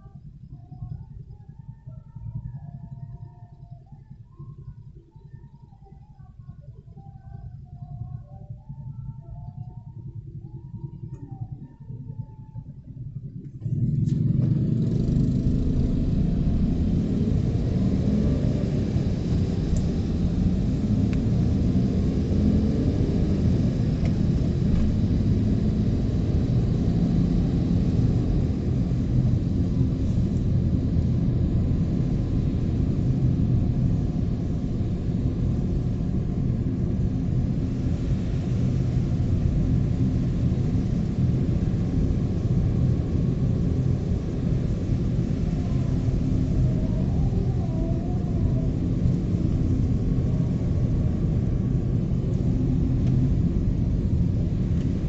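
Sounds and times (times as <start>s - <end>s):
car engine and tyres on wet road: 13.4s - 55.0s.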